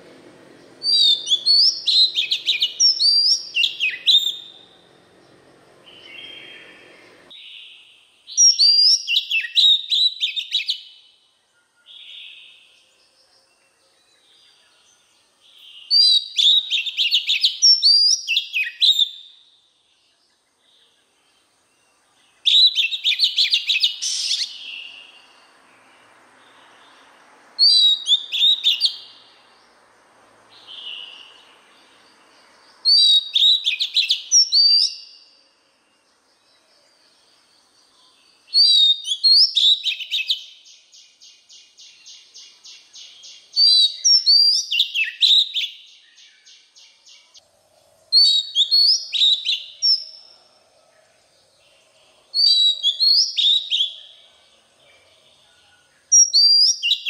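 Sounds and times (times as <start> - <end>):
bird singing whistles: 0.8 - 4.7, 5.8 - 12.8, 15.6 - 19.6, 22.4 - 25.4, 27.6 - 29.3, 30.6 - 31.5, 32.8 - 35.4, 38.0 - 47.3, 48.2 - 50.3, 52.3 - 54.1, 56.1 - 57.0.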